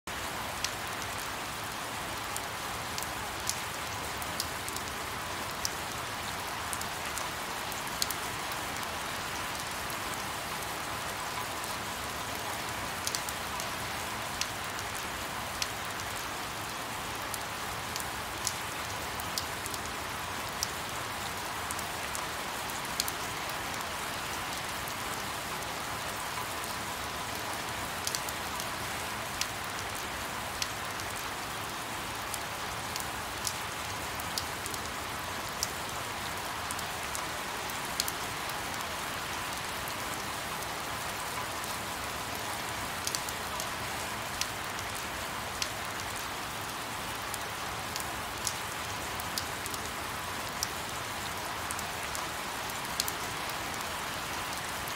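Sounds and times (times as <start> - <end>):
rainfall hiss: 0.1 - 54.9
raindrop ticks: 15.6 - 18.6, 28.0 - 28.3, 43.0 - 43.7, 53.0 - 53.8.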